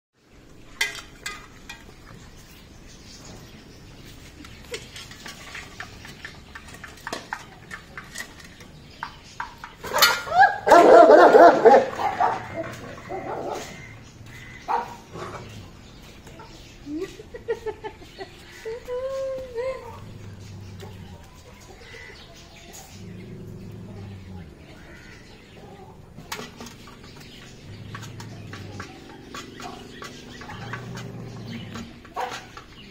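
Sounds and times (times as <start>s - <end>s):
dog barking: 10.0s - 12.6s, 14.7s - 15.0s, 32.2s - 32.5s
dog eating from steel bowl: 25.7s - 32.9s.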